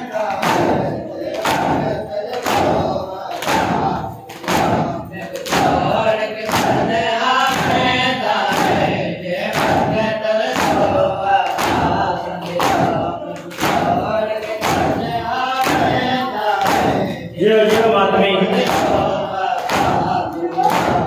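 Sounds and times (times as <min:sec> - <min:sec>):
men chanting in unison: 0:00.0 - 0:21.0
hands slapping chests: 0:00.3 - 0:06.9, 0:07.5 - 0:07.9, 0:08.5 - 0:16.0, 0:16.6 - 0:17.9, 0:18.5 - 0:21.0.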